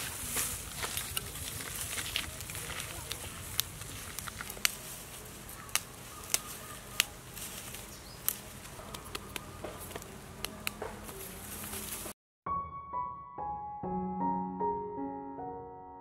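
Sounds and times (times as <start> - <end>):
soil and roots crackling: 0.0 - 12.2.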